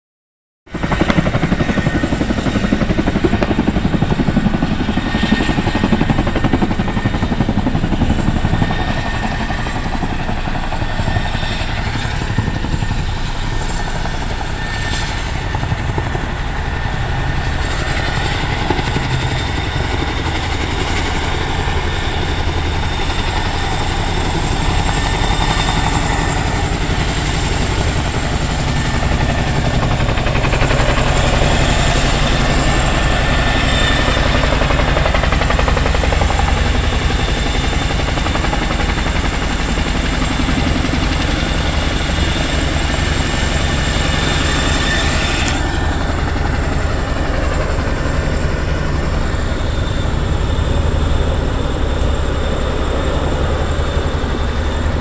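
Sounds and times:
helicopter rotor chop: 0.7s - 55.0s.

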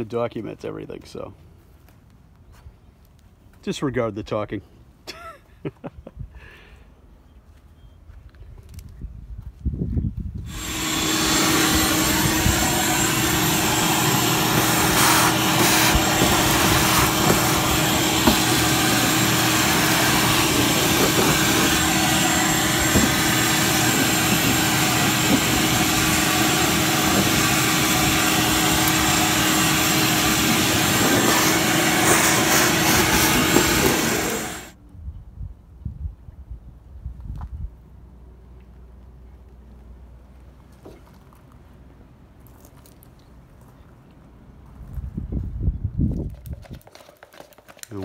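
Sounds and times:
shop vacuum running: 10.4s - 34.8s.

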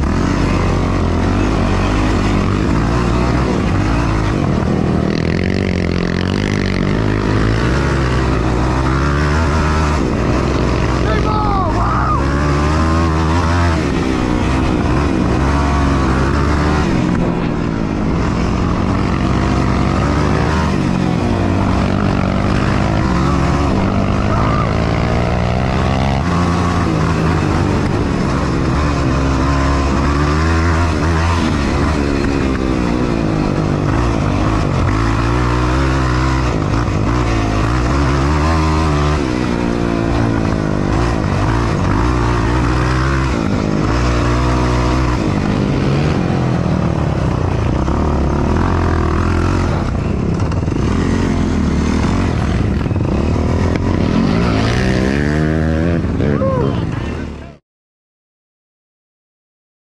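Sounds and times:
quad engine revving: 0.0s - 57.6s.

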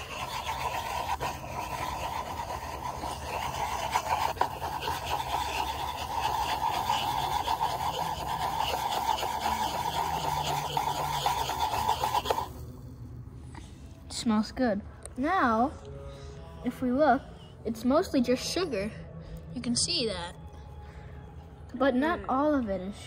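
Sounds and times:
plastic cup scraping wooden floor: 0.0s - 12.6s.

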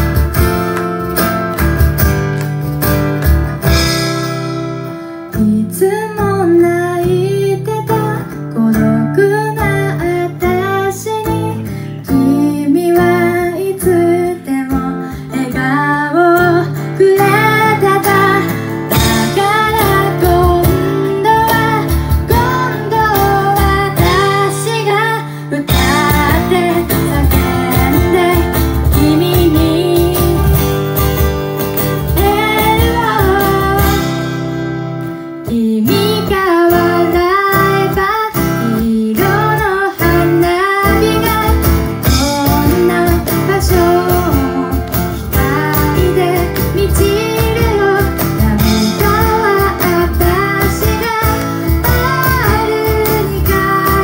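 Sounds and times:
hand percussion beats: 0.0s - 5.6s, 17.0s - 34.9s, 35.5s - 54.0s
strummed acoustic guitar: 0.0s - 54.0s
woman singing: 5.3s - 30.8s, 32.0s - 34.5s, 35.4s - 54.0s.

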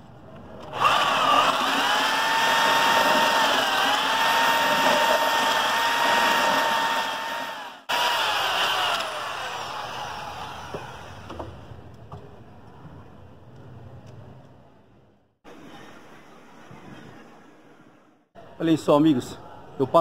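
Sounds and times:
electric drill motor whine: 0.8s - 11.4s.

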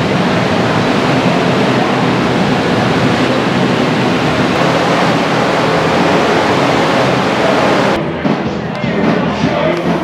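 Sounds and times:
crowded barn din: 5.8s - 10.0s.

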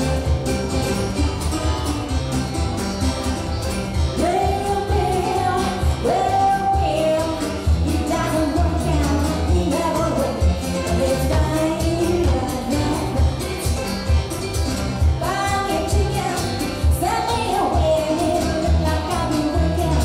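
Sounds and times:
woman singing country song: 4.0s - 14.2s, 15.0s - 20.0s.

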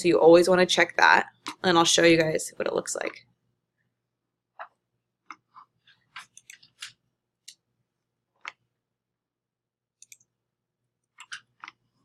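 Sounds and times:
computer mouse clicks: 6.2s - 7.6s, 10.0s - 10.3s.

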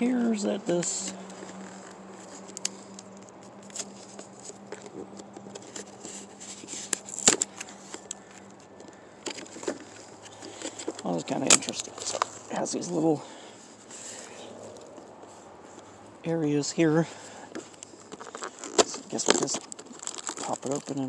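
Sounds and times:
hands handling cardboard box: 0.1s - 13.0s, 17.1s - 21.0s.

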